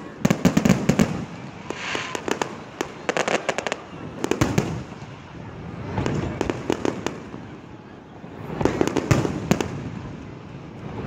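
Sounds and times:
fireworks shells bursting: 0.5s - 3.8s.

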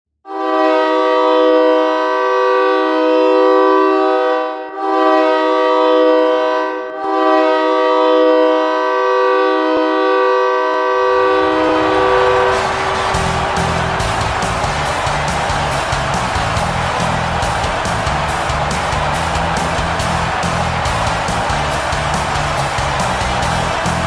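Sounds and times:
goal horn blasts: 0.3s - 24.0s
music: 11.2s - 24.0s.

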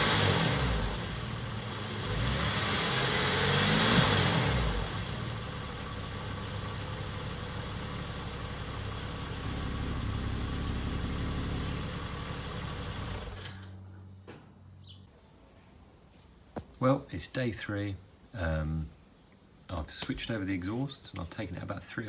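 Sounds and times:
sports car engine idling: 4.7s - 13.3s.

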